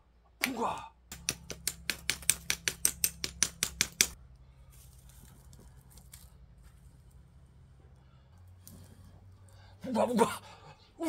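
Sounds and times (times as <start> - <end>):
flint striking stone: 1.1 - 4.2.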